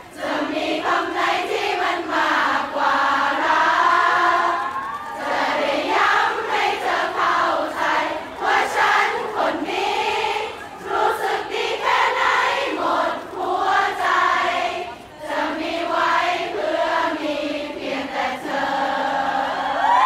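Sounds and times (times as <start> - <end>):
crowd screaming and cheering: 3.4 - 8.5, 19.0 - 20.0.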